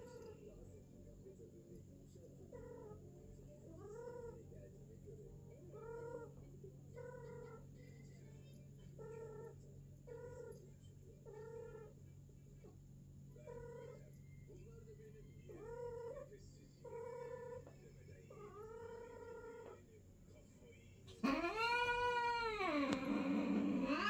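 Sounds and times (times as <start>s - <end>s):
cat moaning calls: 21.1s - 24.0s.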